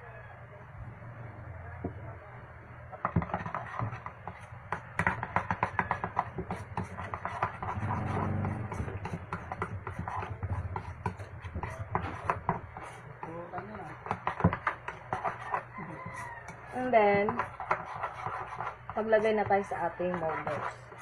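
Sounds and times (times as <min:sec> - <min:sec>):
utensil scraping mixing bowl: 0:02.9 - 0:21.0.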